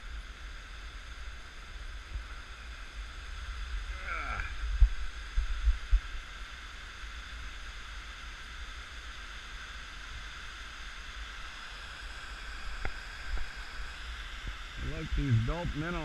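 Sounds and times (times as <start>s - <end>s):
low rumble: 14.8s - 16.0s.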